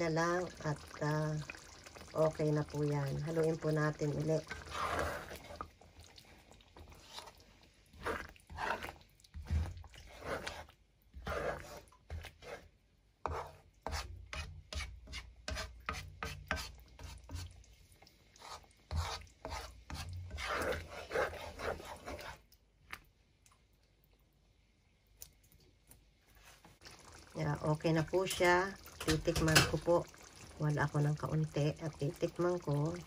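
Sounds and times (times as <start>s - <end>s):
utensil scraping a pan: 4.0s - 5.8s, 6.8s - 17.5s, 18.4s - 22.4s.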